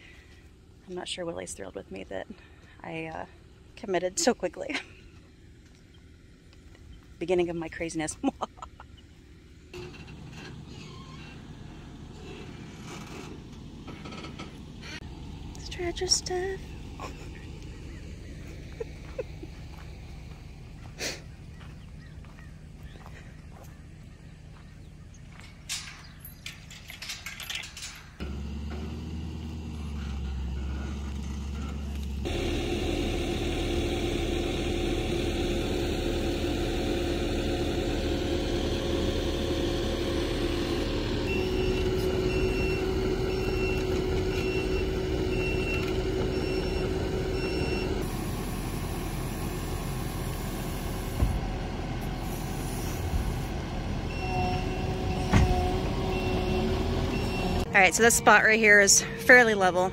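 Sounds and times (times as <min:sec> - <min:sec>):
diesel engine running: 0:00.0 - 0:59.9
metal gate latch clicks: 0:25.5 - 0:28.2
backup alarm beeping: 0:41.2 - 0:48.9, 0:54.1 - 0:59.9.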